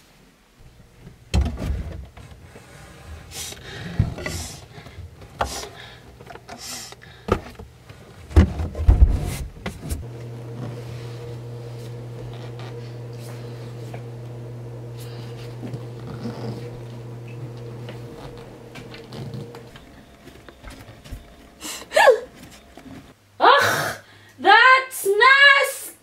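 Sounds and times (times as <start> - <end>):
knocks and clatters in a cabinet: 1.3 - 2.3, 7.3 - 10.0
steady low hum: 8.9 - 23.2.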